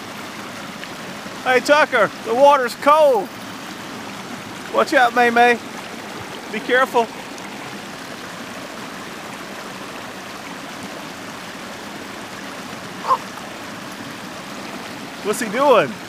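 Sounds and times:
creek water rushing over rock: 0.0s - 16.0s.

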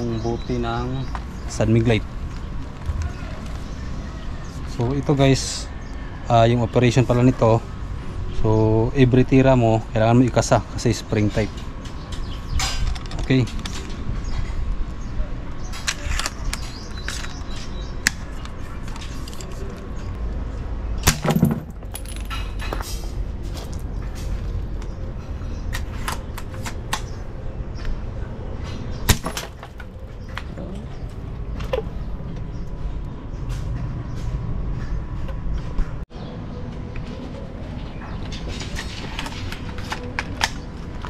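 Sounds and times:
glass bottle breaking: 21.0s - 22.6s, 29.1s - 29.7s.

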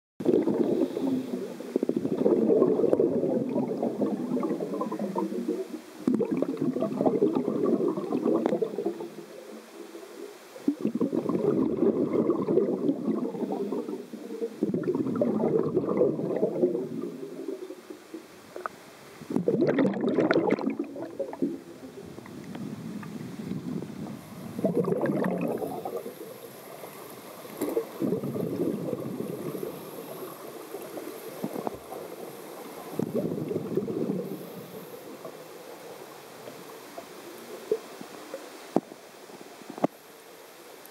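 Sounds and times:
fizzing burst of bubbles: 0.2s - 9.6s, 10.6s - 18.6s, 19.3s - 21.7s, 24.6s - 35.8s
underwater churning and bubbling: 0.2s - 40.9s.

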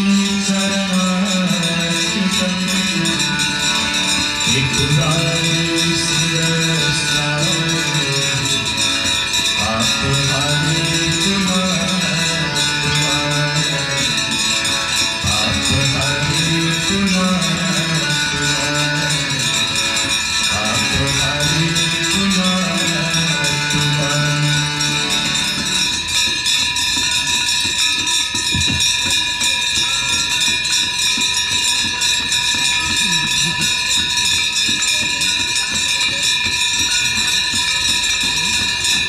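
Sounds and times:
low-voiced devotional chanting: 0.0s - 26.0s
bells ringing: 0.0s - 39.0s.

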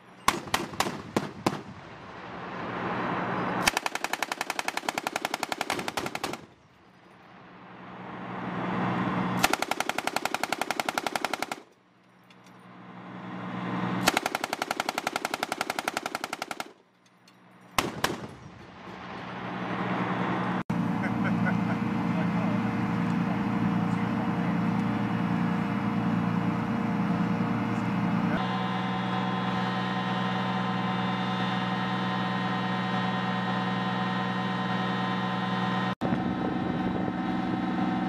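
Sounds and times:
vehicle engine humming: 0.0s - 38.0s
machine gun firing bursts: 0.3s - 1.7s, 3.6s - 6.6s, 9.4s - 11.7s, 14.0s - 16.8s, 17.8s - 18.5s.

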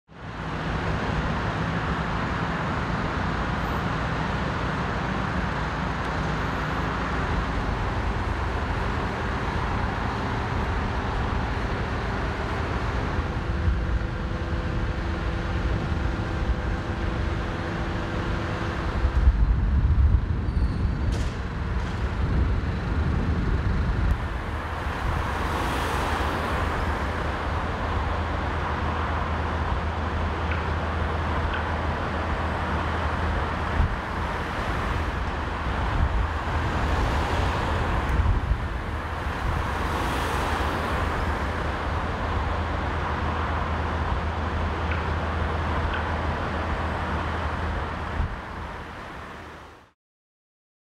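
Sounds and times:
heavy diesel crane engine running: 0.3s - 20.4s, 41.2s - 49.0s.

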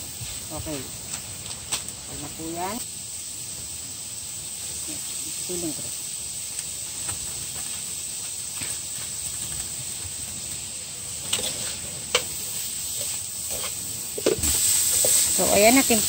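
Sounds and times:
food sizzling in a pan: 0.0s - 16.0s.

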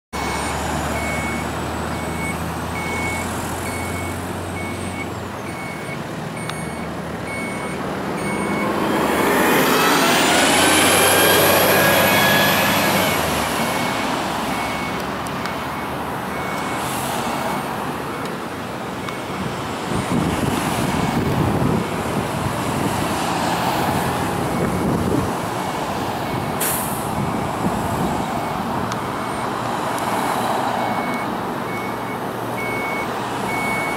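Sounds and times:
reversing beeper: 0.2s - 18.2s, 30.8s - 33.9s
vehicle passing by: 7.0s - 15.2s, 19.6s - 31.8s.

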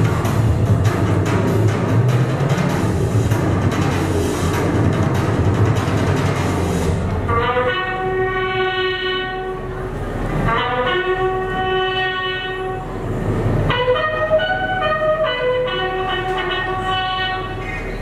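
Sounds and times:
low train rumble: 0.0s - 18.0s
multi-tone train horn blasts: 7.2s - 17.9s.

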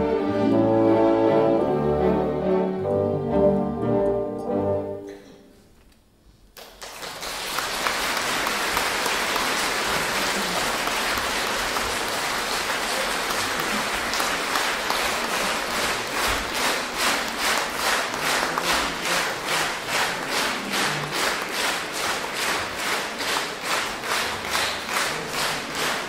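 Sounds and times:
audience applause: 6.6s - 26.0s.

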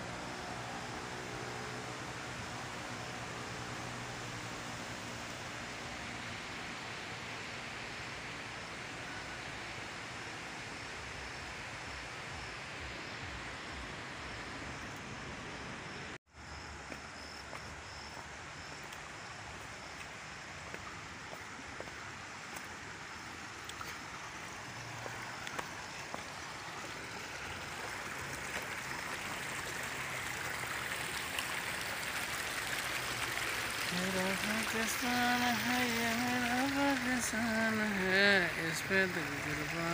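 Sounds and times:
water rushing over rocks: 18.2s - 39.9s.

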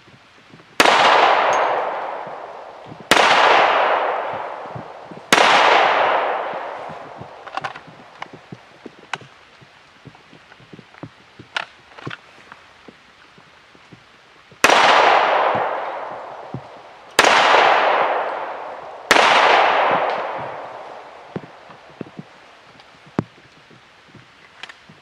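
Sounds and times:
handgun shots with echo: 0.8s - 7.9s, 17.2s - 21.6s.

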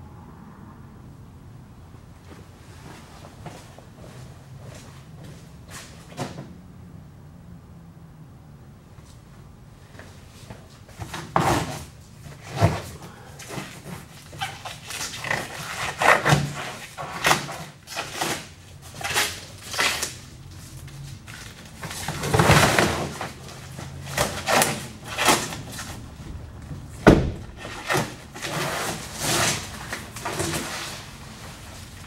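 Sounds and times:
vinyl wrap tearing off a van: 11.0s - 32.0s.

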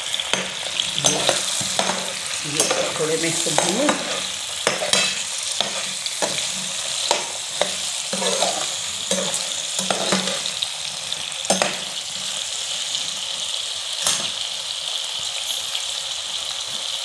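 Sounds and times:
potatoes sizzling in hot oil: 0.0s - 17.0s
spoon scraping and knocking pan: 0.2s - 12.4s.

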